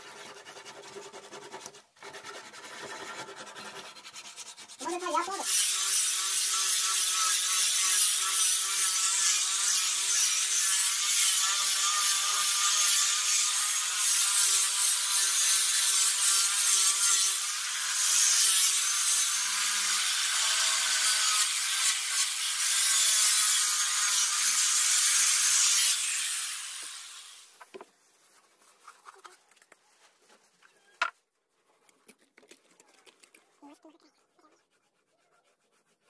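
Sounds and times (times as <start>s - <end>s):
sanding disc rubbing wood: 0.0s - 13.3s, 34.4s - 36.0s.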